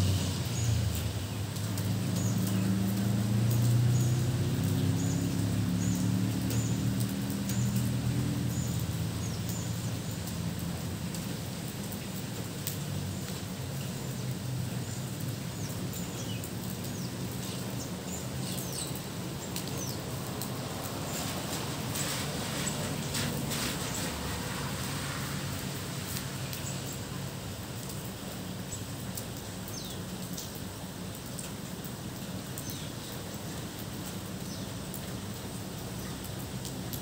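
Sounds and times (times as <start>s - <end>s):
steady rain: 0.0s - 37.0s
small birds chirping: 3.6s - 10.6s, 13.1s - 24.4s, 29.6s - 30.6s, 32.5s - 33.6s.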